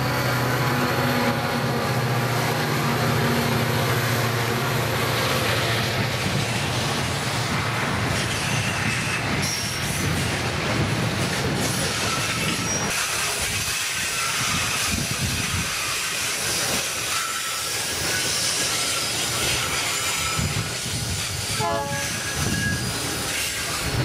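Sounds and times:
train wheels running on rails: 0.0s - 24.0s
faint high wheel squeal: 16.9s - 19.1s, 21.6s - 23.7s.

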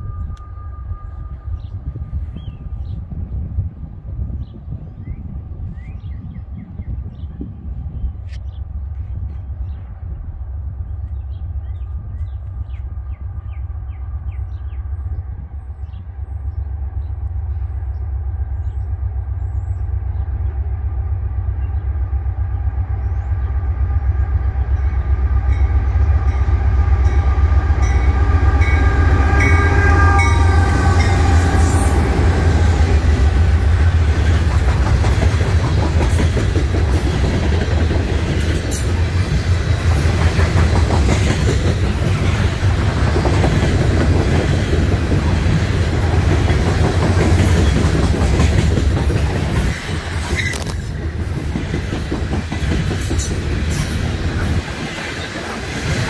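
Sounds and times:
diesel locomotive passing: 0.0s - 56.0s
train wheels clattering: 26.4s - 56.0s.

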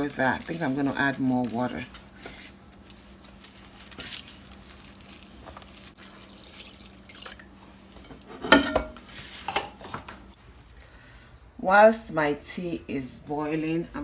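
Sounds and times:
water pouring into a pot: 6.0s - 7.6s.

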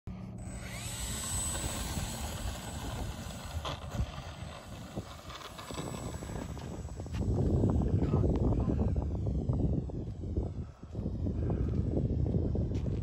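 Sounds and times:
wind buffeting microphone: 0.6s - 13.0s.

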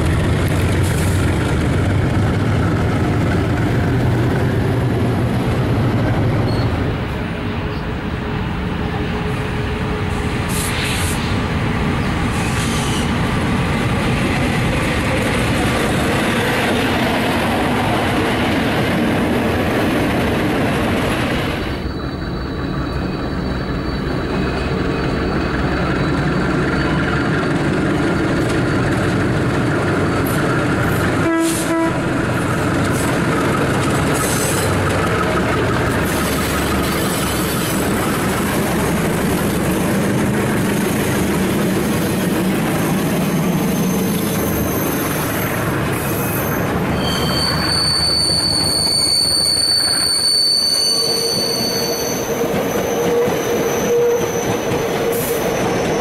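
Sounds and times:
diesel locomotives hauling train: 0.0s - 56.0s
train horn blast: 31.2s - 32.1s.

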